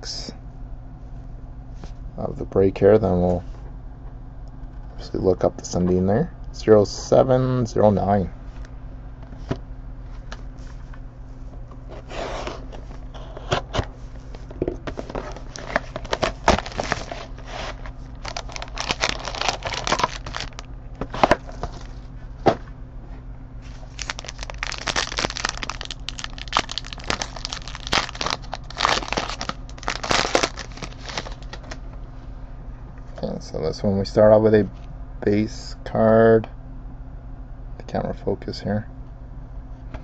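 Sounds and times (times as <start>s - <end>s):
faint low hum: 0.0s - 40.0s
plastic wrap tearing and crinkling: 14.9s - 20.7s, 23.6s - 31.8s.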